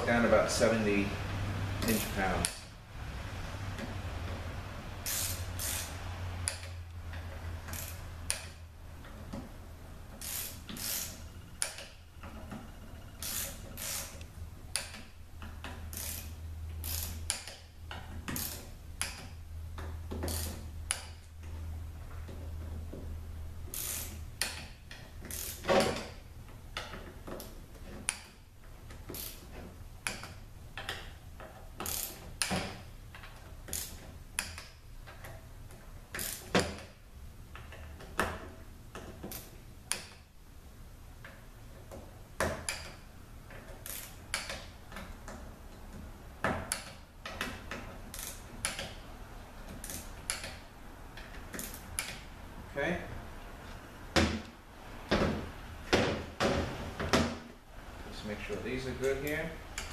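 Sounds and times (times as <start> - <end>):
hand ratchet clicking: 1.8 - 2.7, 5.0 - 8.6, 10.1 - 12.0, 13.2 - 19.4, 20.1 - 21.3, 23.7 - 26.2, 31.8 - 35.3, 36.1 - 36.9, 42.6 - 45.4, 46.7 - 49.0, 49.7 - 50.6, 51.2 - 52.3.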